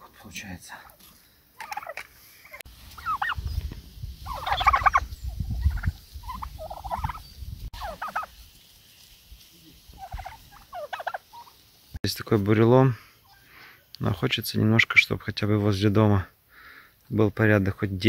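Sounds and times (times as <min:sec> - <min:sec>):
turkeys gobbling: 0:01.6 - 0:03.5, 0:04.2 - 0:11.7.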